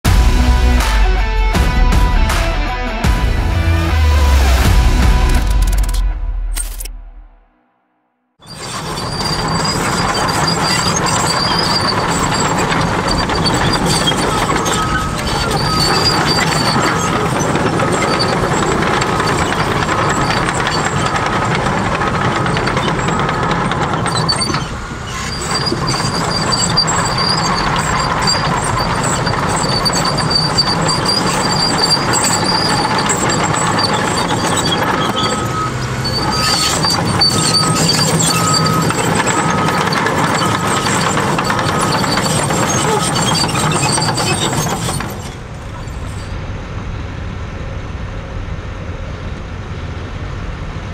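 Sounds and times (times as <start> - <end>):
steel tracks clanking and squealing: 8.4 - 46.7
bulldozer engine under load: 8.4 - 50.9
back-up alarm beeping: 35.0 - 40.7.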